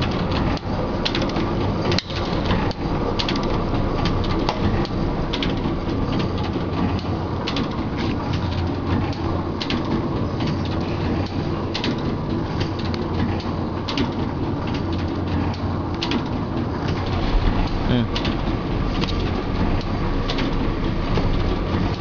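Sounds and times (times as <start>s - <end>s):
sharp machine clicks: 0.0s - 12.0s
low machine hum: 0.0s - 22.0s
stitching machine clatter: 0.0s - 22.0s.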